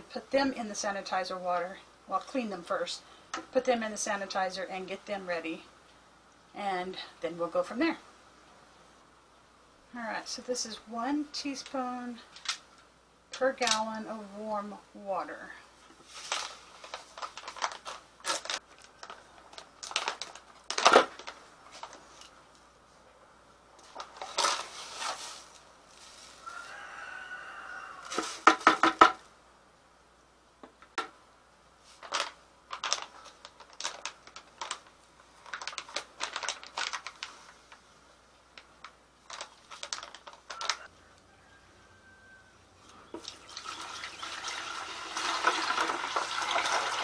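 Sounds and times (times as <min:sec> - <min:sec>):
paper packet tearing and crinkling: 0:16.1 - 0:22.0, 0:32.0 - 0:37.5, 0:38.8 - 0:40.9.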